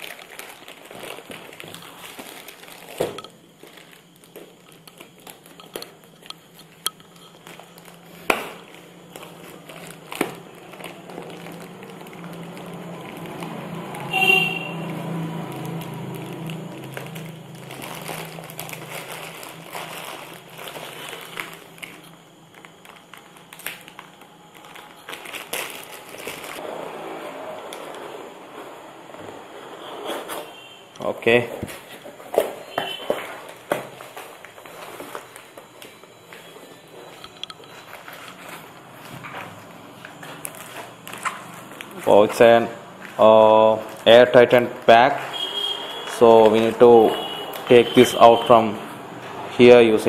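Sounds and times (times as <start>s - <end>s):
plastic bag tearing and crinkling: 0.0s - 6.1s, 7.2s - 28.6s, 37.9s - 48.7s.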